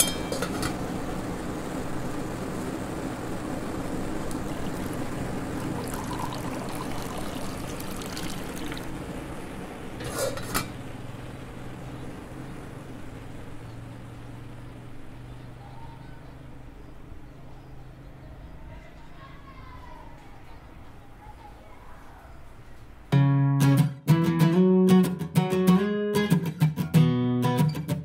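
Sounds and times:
low steady hum: 0.0s - 23.1s
tea pouring into a cup: 4.2s - 9.2s.

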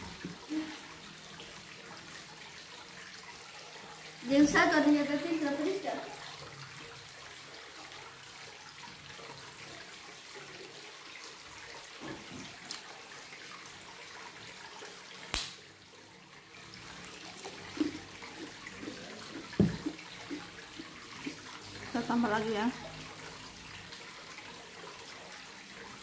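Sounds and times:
sharp crack: 15.3s - 15.6s
chewing: 17.3s - 20.5s
low thump: 19.6s - 19.9s.

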